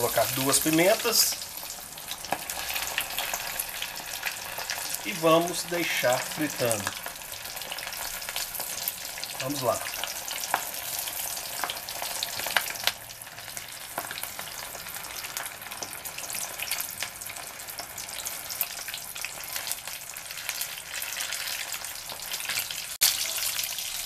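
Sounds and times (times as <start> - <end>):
food deep-frying in hot oil: 0.0 - 24.0
small crackling pops: 2.2 - 3.4.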